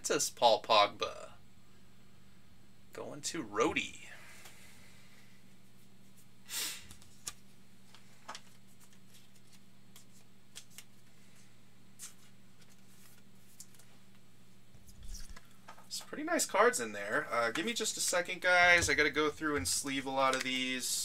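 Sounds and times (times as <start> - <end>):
low electrical hum: 0.0 - 21.0
trading cards clicking and rustling: 6.9 - 11.1, 12.0 - 13.9, 17.4 - 20.8.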